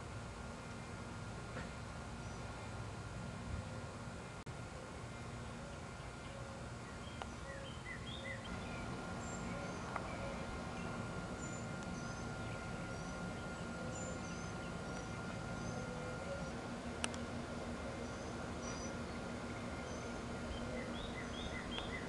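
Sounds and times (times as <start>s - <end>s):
outdoor background noise: 0.0s - 22.0s
small birds chirping: 5.1s - 22.0s.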